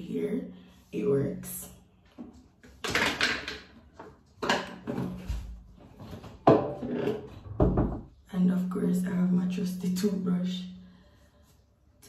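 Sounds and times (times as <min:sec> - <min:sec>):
objects rustling and clattering: 0:02.0 - 0:08.1.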